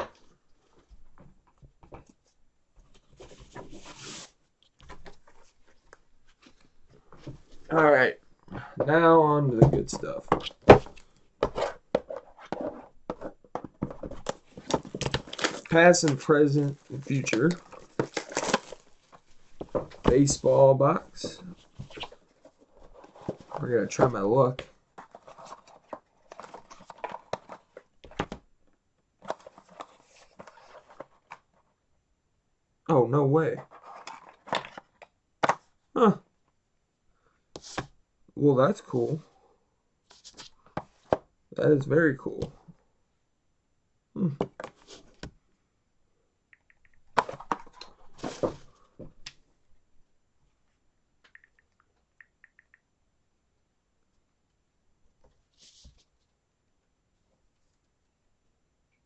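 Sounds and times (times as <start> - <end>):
cardboard box handling: 10.3 - 20.2.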